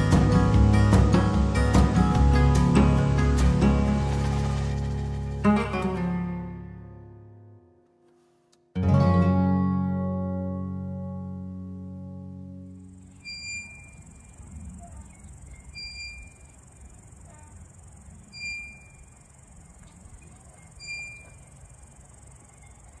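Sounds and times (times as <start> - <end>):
insects buzzing: 0.0 - 5.6, 11.5 - 23.0.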